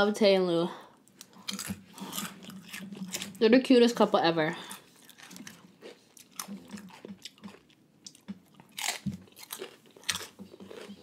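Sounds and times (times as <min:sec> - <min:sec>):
crunching and chewing chips: 0:01.1 - 0:03.5, 0:04.6 - 0:11.0.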